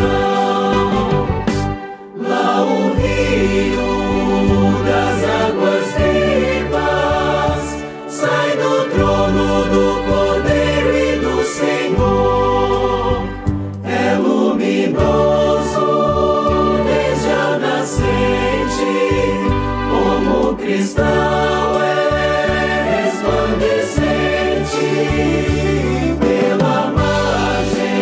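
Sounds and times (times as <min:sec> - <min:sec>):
choir singing a hymn: 0:00.0 - 0:28.0
instrumental accompaniment: 0:00.0 - 0:28.0.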